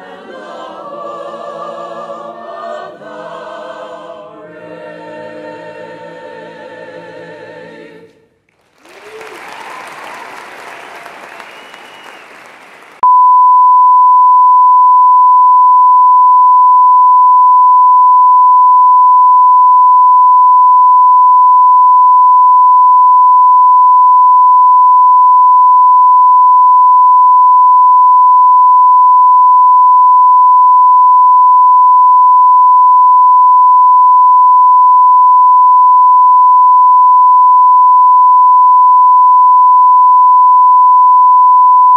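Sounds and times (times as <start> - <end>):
faint applause: 8.5 - 13.0.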